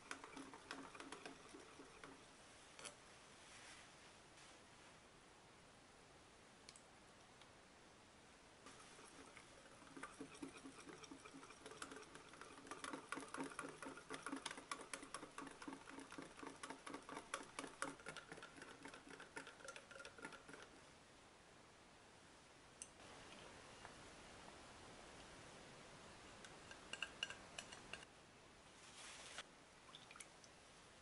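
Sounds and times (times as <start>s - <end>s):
whisk beating batter in glass bowl: 0.0s - 2.3s, 8.7s - 20.9s, 26.6s - 28.1s.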